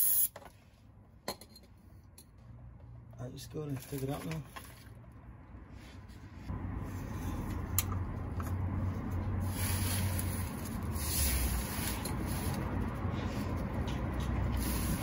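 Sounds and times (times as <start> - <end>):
hand and tool scraping: 9.8 - 15.0.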